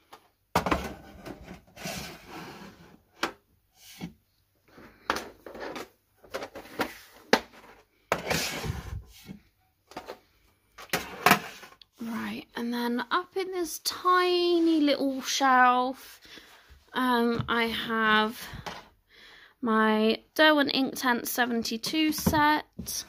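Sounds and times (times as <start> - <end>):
pencil cases knocking on wooden shelf: 0.5 - 1.5
sliding scrapes on wood: 8.1 - 9.4.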